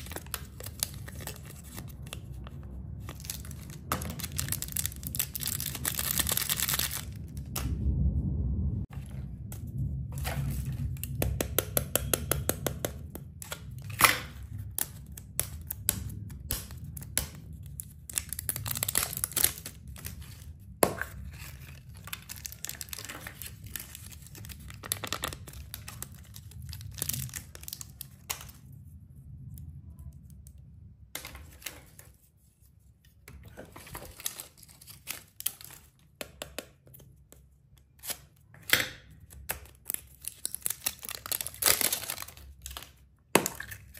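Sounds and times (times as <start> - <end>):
wrappers crinkling and tearing: 3.2 - 7.3, 39.4 - 43.0.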